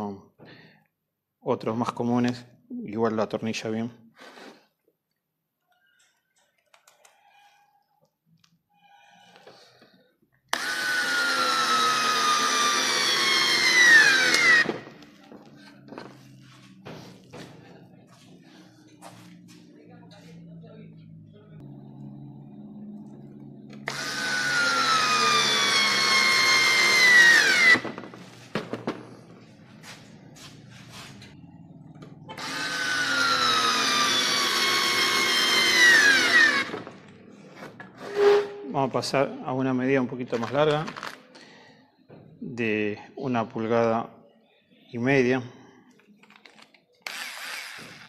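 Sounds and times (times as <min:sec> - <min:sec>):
cordless screwdriver motor whine: 0:10.5 - 0:14.8, 0:23.8 - 0:27.8, 0:32.4 - 0:36.8, 0:47.0 - 0:48.0.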